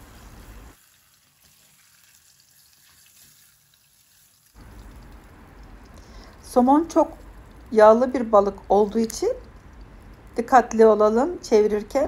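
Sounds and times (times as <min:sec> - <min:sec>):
fish sizzling in a frying pan: 0:00.0 - 0:05.2.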